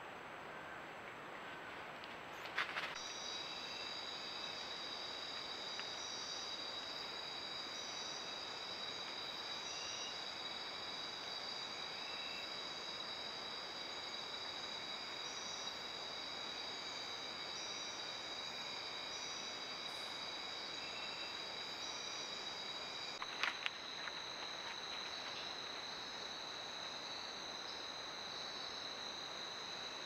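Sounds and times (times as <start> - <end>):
insects trilling: 2.3 - 30.0.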